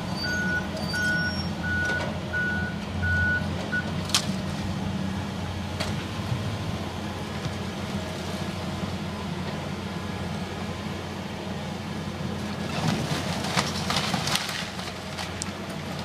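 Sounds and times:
excavator diesel engine running: 0.0 - 16.0
boards cracking and clattering: 12.8 - 15.5.

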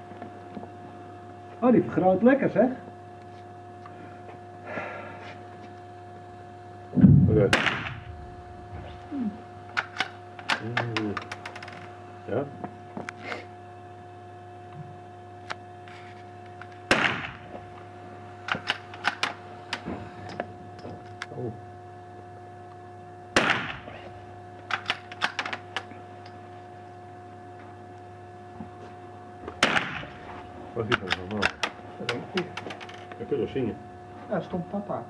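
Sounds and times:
electrical hum: 0.0 - 35.0
rifle shots echoing: 7.2 - 8.2, 16.9 - 17.4, 23.4 - 23.9.

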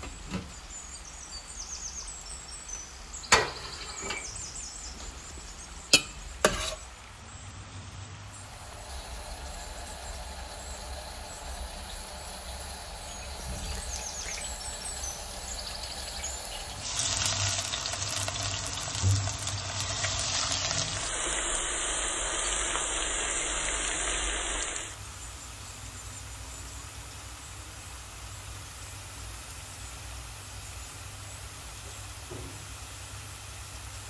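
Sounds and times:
food sizzling in hot oil: 5.9 - 34.0.

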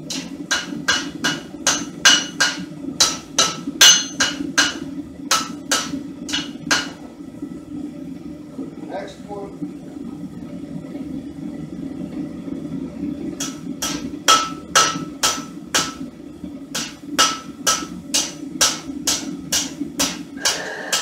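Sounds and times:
hammer striking steel on anvil: 0.1 - 7.0, 13.4 - 16.0, 16.8 - 21.0.

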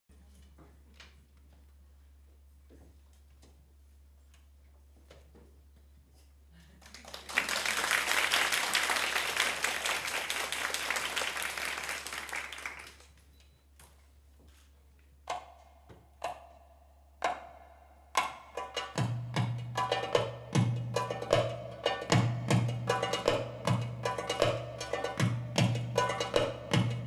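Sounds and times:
audience applauding: 6.8 - 13.2.

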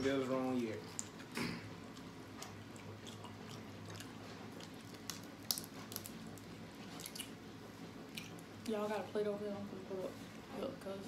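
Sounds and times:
chewing and wet squishing: 0.6 - 7.4, 8.0 - 8.8.

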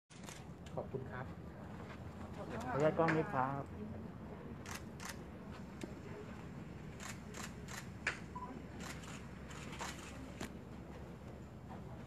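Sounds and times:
camera shutters clicking: 0.1 - 0.5, 4.6 - 5.2, 7.0 - 8.2, 8.8 - 10.5.

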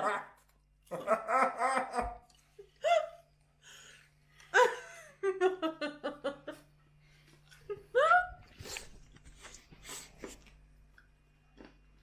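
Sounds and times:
people laughing: 0.0 - 3.2.

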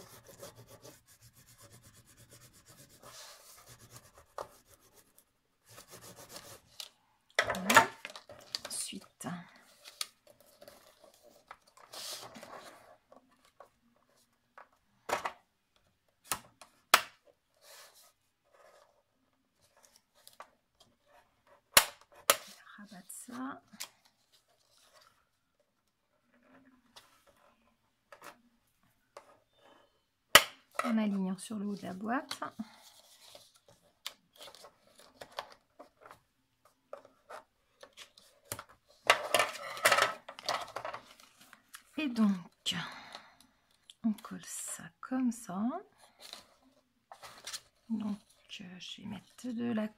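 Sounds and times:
paper rustling: 31.8 - 42.0, 46.0 - 48.5.

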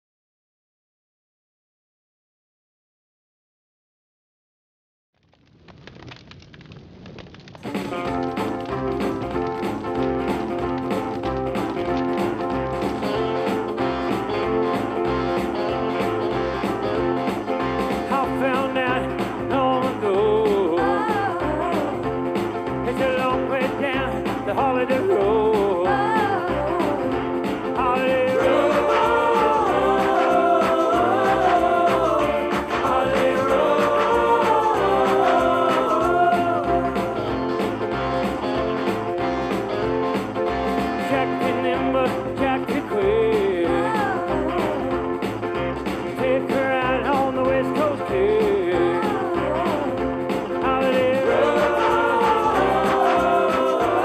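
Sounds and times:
song with sung melody: 11.6 - 39.0, 39.6 - 54.0.

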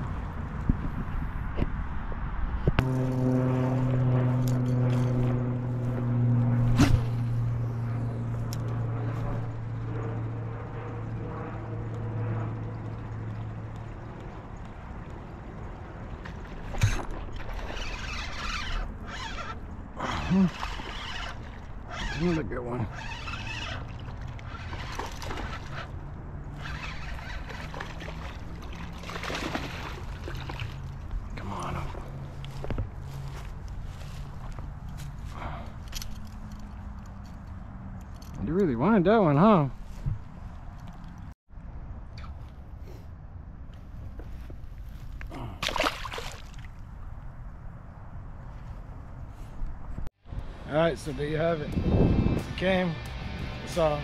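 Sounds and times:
engine drone: 2.2 - 38.4, 50.2 - 54.0
fish thrashing and splashing in water: 27.0 - 31.0, 45.4 - 46.8.

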